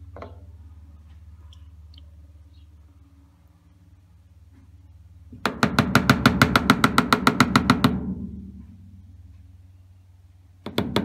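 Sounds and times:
low hum: 0.0s - 5.4s, 8.0s - 10.7s.

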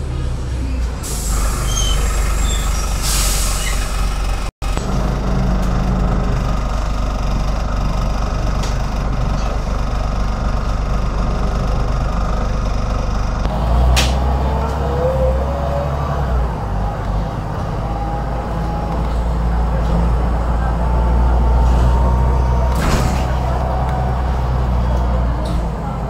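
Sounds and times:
bus engine drone: 0.0s - 26.0s
road noise: 0.0s - 26.0s
sharp air hiss: 1.0s - 3.9s.

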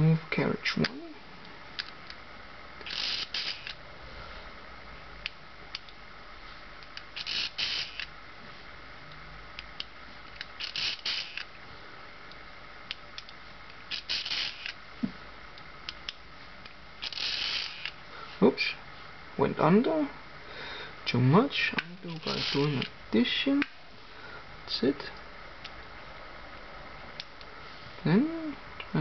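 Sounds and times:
mechanical calculator crank whirring: 2.8s - 3.8s, 7.0s - 8.1s, 10.6s - 11.5s, 13.9s - 14.8s, 17.0s - 18.0s.

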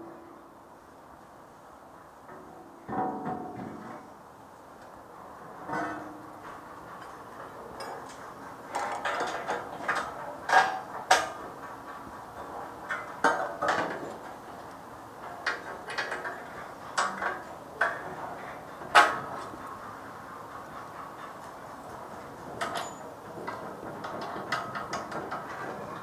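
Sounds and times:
steel plates clanking and scraping: 5.5s - 14.4s, 15.2s - 26.0s.

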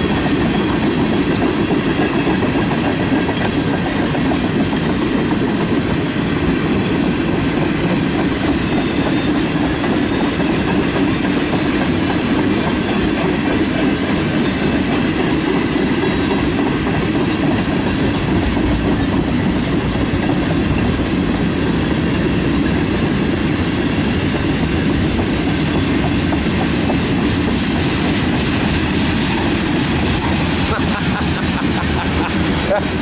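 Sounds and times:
wheels clacking over rail joints: 0.0s - 21.4s
train wheels rumbling on rail: 0.0s - 33.0s.

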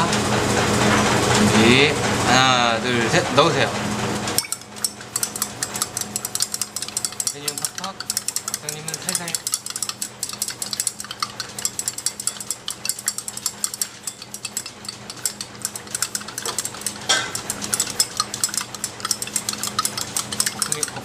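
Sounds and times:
glass rods clinking in beakers: 4.4s - 21.0s.

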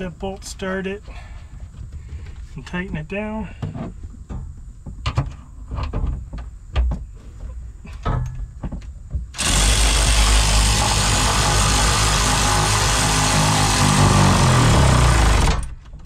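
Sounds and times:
cordless power tool running: 9.4s - 15.7s.

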